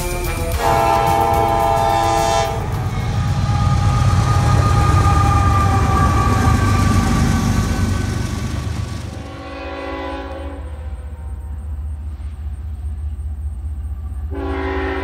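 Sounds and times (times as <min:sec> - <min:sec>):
locomotive horn chord: 0:00.0 - 0:07.8, 0:09.2 - 0:11.3, 0:14.3 - 0:15.0
wheels on rails: 0:00.0 - 0:14.4
locomotive engine rumble: 0:00.0 - 0:15.0.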